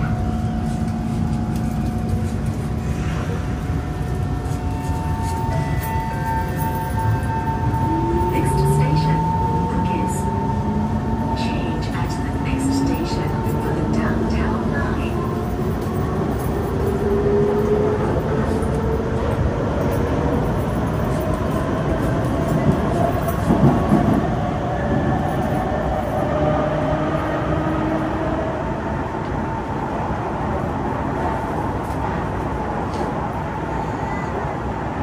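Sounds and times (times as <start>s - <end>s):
wheels rumbling on rail: 0.0s - 35.0s.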